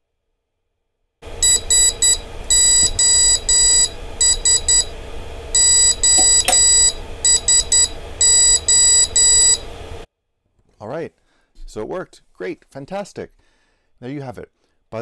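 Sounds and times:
buzzer beeping morse code: 0:01.3 - 0:09.8.

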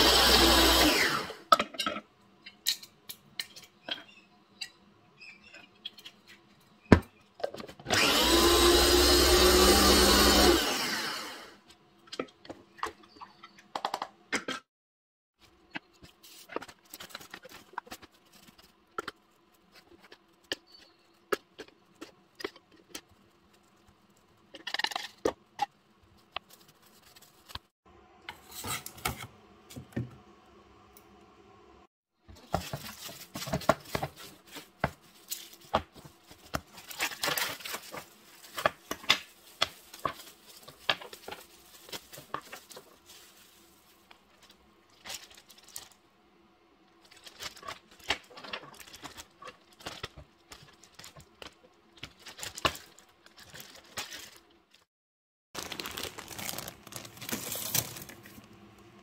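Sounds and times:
cling wrap crinkling: 0:32.4 - 0:46.0, 0:55.6 - 0:58.6
plastic bag rustling: 0:32.4 - 0:46.0, 0:55.6 - 0:58.6
frozen cubes clattering into plastic: 0:55.6 - 0:58.4.

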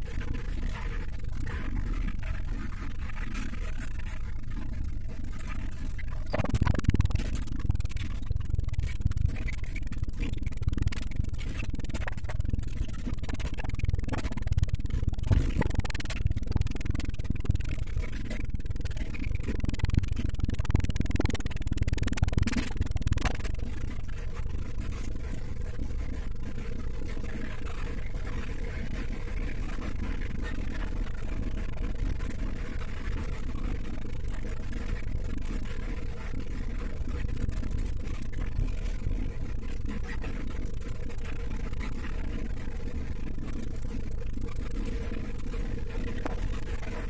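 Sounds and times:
bus rumbling: 0:12.7 - 0:25.8.

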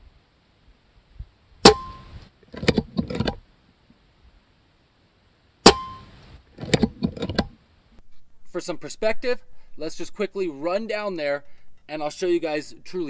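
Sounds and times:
metallic clicks and clanks: 0:01.6 - 0:03.4, 0:05.7 - 0:07.5.

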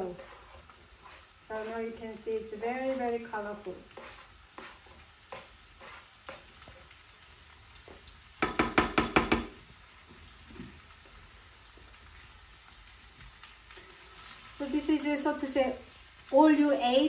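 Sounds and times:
spatula scraping a pan: 0:00.0 - 0:07.1
faint frying sizzle: 0:00.0 - 0:17.0.

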